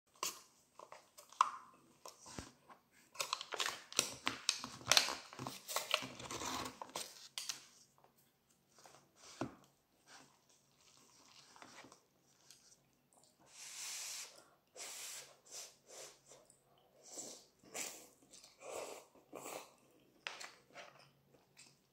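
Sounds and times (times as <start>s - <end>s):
crinkling plastic noodle cup: 3.2s - 7.8s.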